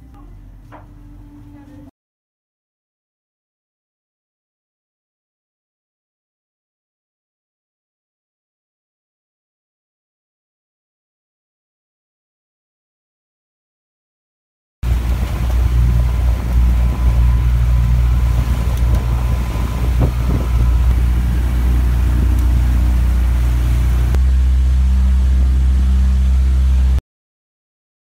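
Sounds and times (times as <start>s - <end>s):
wind buffeting microphone: 14.8s - 24.2s
motorboat engine hum: 14.8s - 27.0s.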